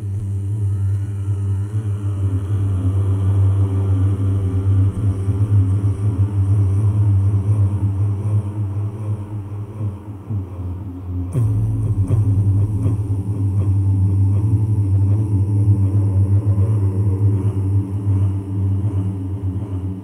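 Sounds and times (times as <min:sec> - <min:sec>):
low rumble with deep hum: 0:11.2 - 0:20.0.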